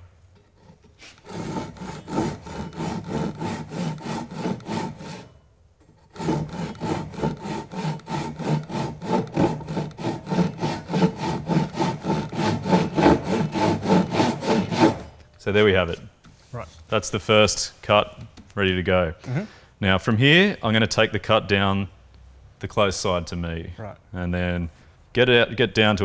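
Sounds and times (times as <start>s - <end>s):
hand saw cutting wood: 0.4s - 15.2s.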